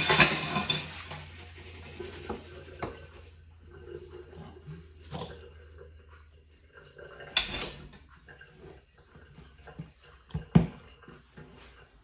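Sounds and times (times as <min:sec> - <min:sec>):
metal sieve clattering: 0:00.0 - 0:02.8.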